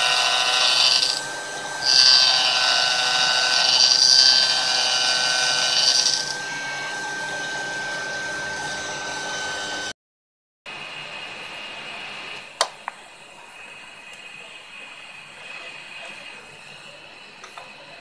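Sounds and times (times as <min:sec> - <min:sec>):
mill spindle whining: 0:00.0 - 0:09.9.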